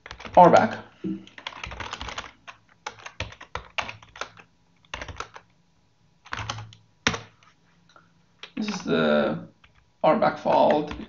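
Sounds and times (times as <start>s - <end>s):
typing on computer keyboard: 0.0s - 5.5s, 6.2s - 7.4s, 9.6s - 9.8s, 10.5s - 11.0s.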